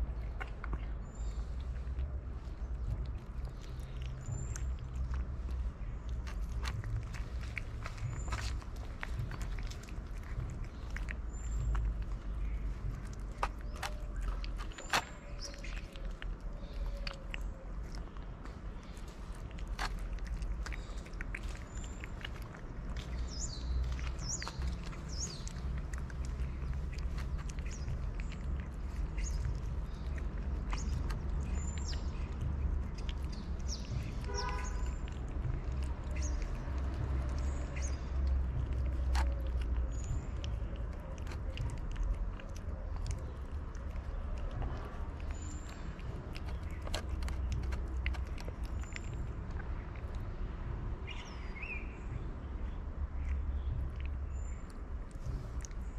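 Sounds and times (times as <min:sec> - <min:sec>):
cat chewing wet food: 0:00.0 - 0:51.7, 0:52.3 - 0:55.9
bird chirping: 0:00.0 - 0:55.9
steady low rumble: 0:00.0 - 0:55.9.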